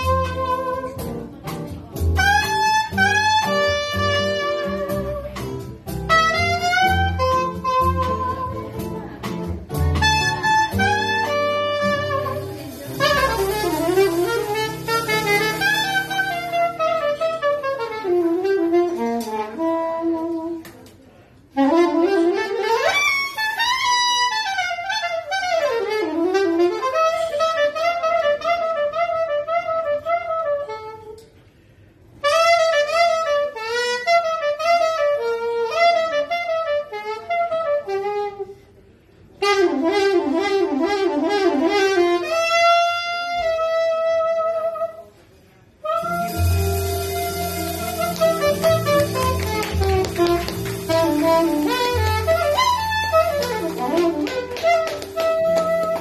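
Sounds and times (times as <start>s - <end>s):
upright bass: 0.0s - 17.2s, 45.9s - 56.0s
guitar backing: 0.0s - 20.8s, 21.6s - 28.9s, 45.8s - 56.0s
soprano saxophone jazz melody: 0.0s - 56.0s.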